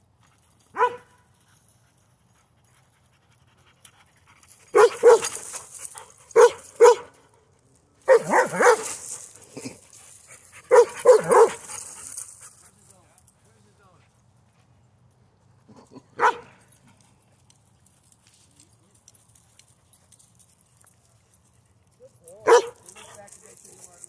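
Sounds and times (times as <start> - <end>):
dog barking: 0.8 - 1.1, 4.8 - 5.4, 6.4 - 7.1, 8.1 - 8.9, 10.7 - 11.7, 16.2 - 16.6, 22.4 - 22.8.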